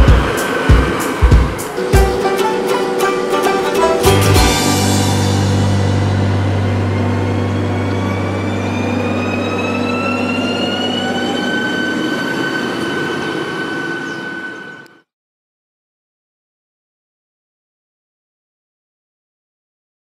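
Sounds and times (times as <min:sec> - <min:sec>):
electric train accelerating: 0:00.0 - 0:15.1.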